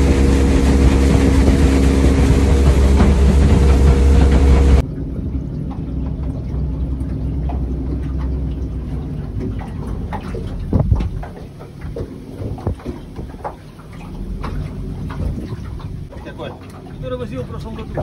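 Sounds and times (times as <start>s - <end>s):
motorboat engine idling: 0.0s - 18.0s
knocks and clicks: 0.7s - 4.9s.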